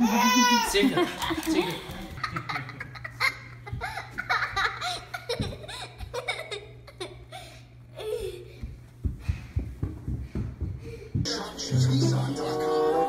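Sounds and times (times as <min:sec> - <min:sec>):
steady low hum: 0:01.0 - 0:13.0
small child giggling: 0:02.2 - 0:07.3, 0:07.9 - 0:08.5.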